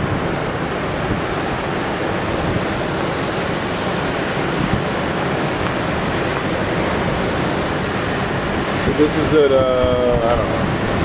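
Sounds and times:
storm waves breaking on beach: 0:00.0 - 0:11.0.

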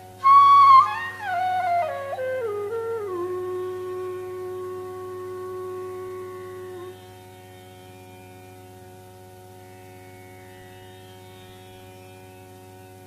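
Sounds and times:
flute long held note: 0:00.0 - 0:07.7
tanpura drone: 0:00.0 - 0:13.0.

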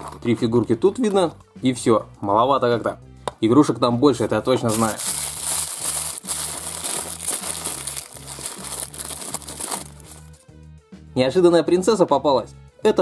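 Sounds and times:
soft background music: 0:00.0 - 0:13.0
packaging crinkling and rustling: 0:04.6 - 0:10.4.

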